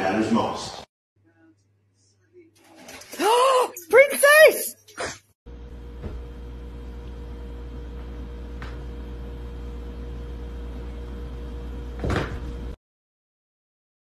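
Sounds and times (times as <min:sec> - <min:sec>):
low mechanical hum: 0:05.5 - 0:12.8.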